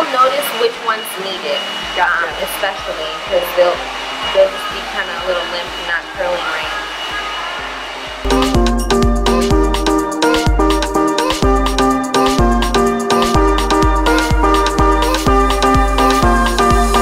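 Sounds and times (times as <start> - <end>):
faint voices: 0.0 - 8.2
hair dryer blowing: 0.0 - 8.3, 13.2 - 17.0
music: 1.0 - 17.0.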